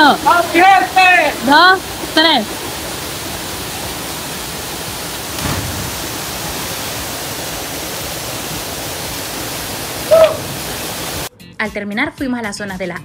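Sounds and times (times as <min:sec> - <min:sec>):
waterfall rushing into pool: 0:00.0 - 0:11.3
low thump: 0:05.4 - 0:06.2.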